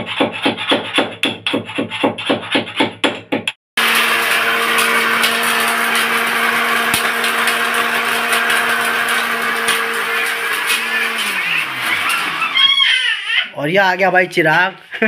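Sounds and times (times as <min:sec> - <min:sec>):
mixer grinder grinding: 0:03.8 - 0:13.5.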